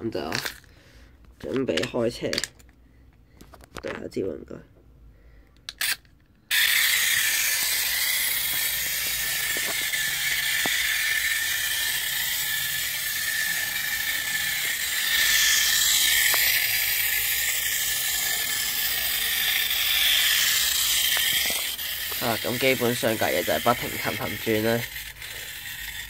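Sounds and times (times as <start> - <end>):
clockwork toy train whirring: 0.3 - 0.7, 5.7 - 26.0.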